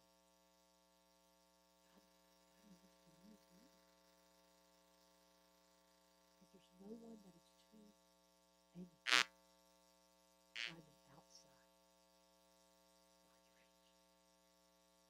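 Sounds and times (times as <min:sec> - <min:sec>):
mains hum: 0:00.0 - 0:15.0
short sharp noises: 0:09.1 - 0:09.3, 0:10.6 - 0:10.8.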